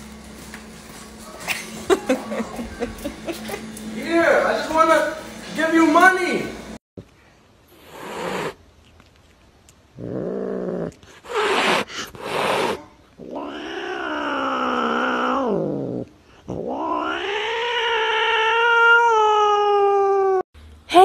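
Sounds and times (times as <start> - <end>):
cat hissing: 7.7 - 8.6, 10.0 - 19.7
cat yowling: 11.3 - 15.9, 16.5 - 20.4.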